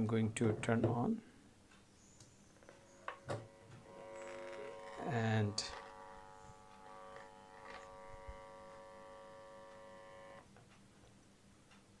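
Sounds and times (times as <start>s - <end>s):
faint low hum: 0.0s - 12.0s
electrical buzz from speaker: 2.5s - 10.5s.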